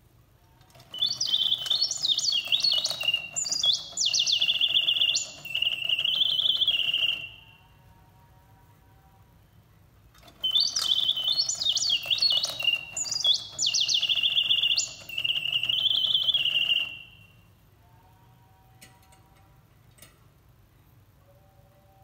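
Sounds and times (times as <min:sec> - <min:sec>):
mechanical birdsong whistle: 0:00.7 - 0:07.8, 0:10.2 - 0:17.5.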